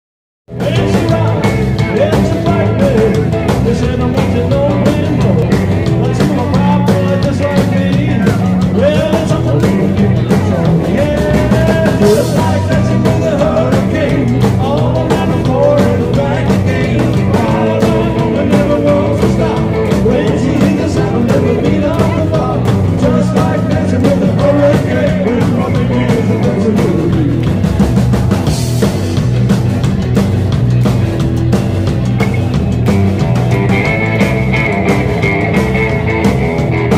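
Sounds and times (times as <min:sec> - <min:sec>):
drums: 0:00.5 - 0:36.9
electric guitars: 0:00.5 - 0:36.9
man singing into microphone: 0:00.6 - 0:27.4.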